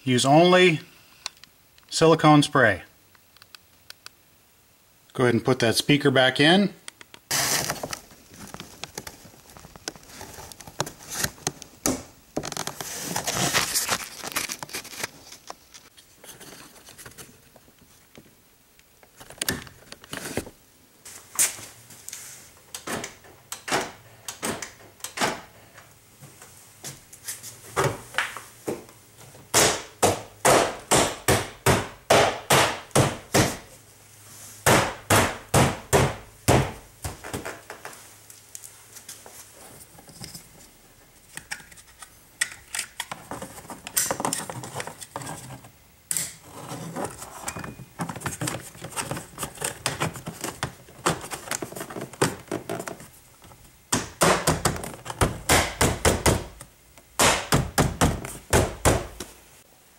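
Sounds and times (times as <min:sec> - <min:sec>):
rustling and scraping: 0:07.2 - 0:18.4, 0:19.1 - 0:22.7, 0:25.6 - 0:29.4, 0:37.0 - 0:53.8.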